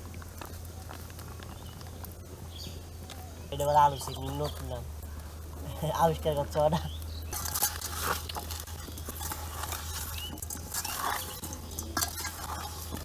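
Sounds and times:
spoon scraping metal bowl: 7.3 - 13.0.

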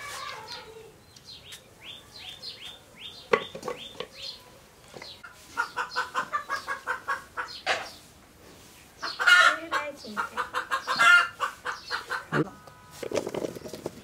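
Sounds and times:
bird chirping: 0.4 - 8.1, 8.7 - 12.5
chicken clucking: 5.0 - 8.0, 9.0 - 12.5.

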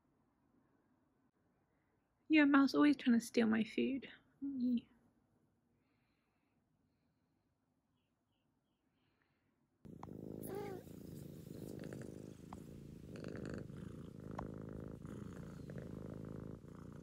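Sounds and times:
cat purring: 9.9 - 17.0
cat wavering cry: 10.4 - 10.9.

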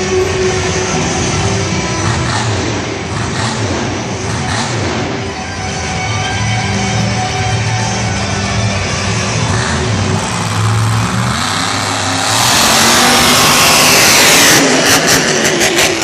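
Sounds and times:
truck engine revving hard: 0.0 - 5.4, 9.1 - 16.0.

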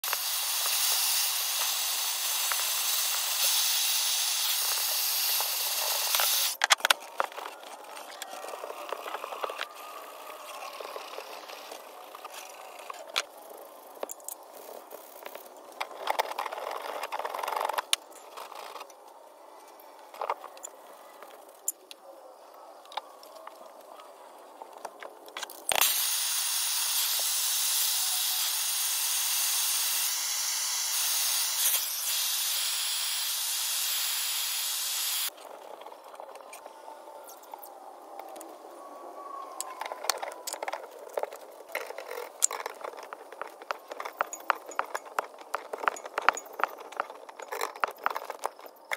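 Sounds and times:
gas torch hissing: 0.0 - 6.6, 25.7 - 35.3.

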